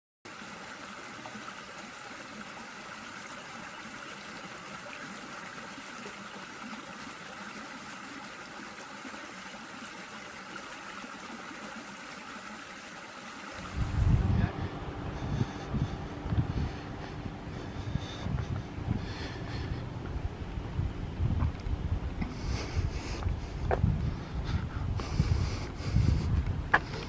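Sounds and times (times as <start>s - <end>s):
stream running over rocks: 0.3s - 14.2s.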